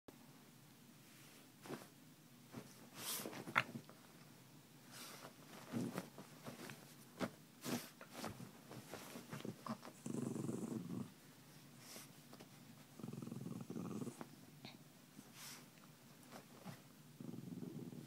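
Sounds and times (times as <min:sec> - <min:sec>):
bedding rustling and clicks: 0:01.6 - 0:04.3, 0:04.9 - 0:10.1, 0:15.6 - 0:17.0
small dog grumbling: 0:09.6 - 0:11.2, 0:13.0 - 0:14.3, 0:17.2 - 0:18.0.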